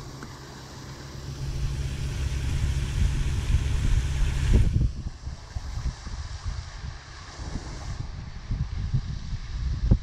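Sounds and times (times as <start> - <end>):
motor humming: 0.0 - 5.3
wind rumble on microphone: 0.0 - 10.0.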